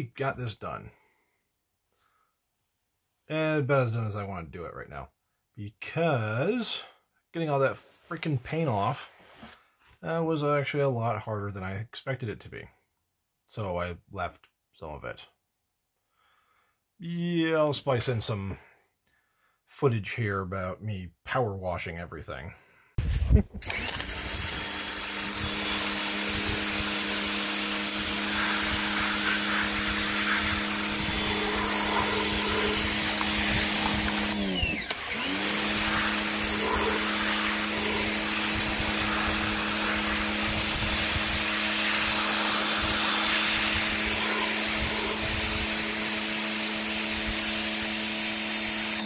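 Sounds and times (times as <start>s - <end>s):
pressure washer motor hum: 23.6s - 49.0s
water jet hissing on plastic: 25.4s - 34.5s, 35.6s - 46.0s.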